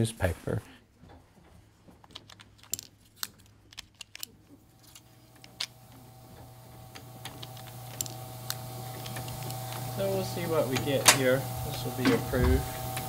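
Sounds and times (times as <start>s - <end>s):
printing press running: 5.3s - 13.0s.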